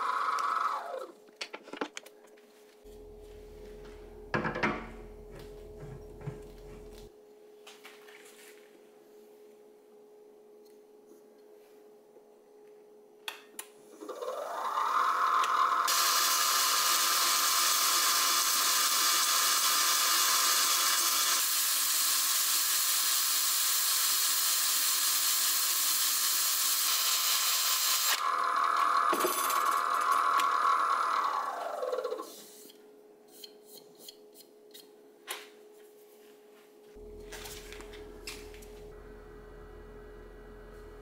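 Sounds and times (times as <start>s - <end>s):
wood lathe motor whine: 0.0s - 1.1s, 14.0s - 32.3s.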